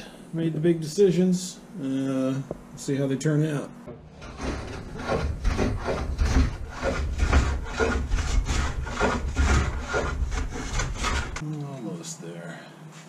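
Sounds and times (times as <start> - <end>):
hand plane shaving wood: 4.2 - 11.4.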